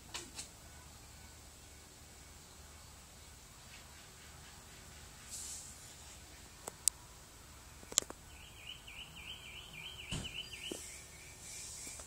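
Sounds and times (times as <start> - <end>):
dull thump: 10.1 - 10.8.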